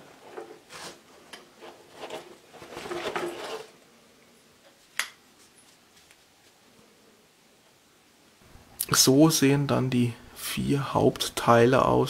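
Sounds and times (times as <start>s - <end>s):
stabilizer scraping out of foam case: 1.7s - 3.7s.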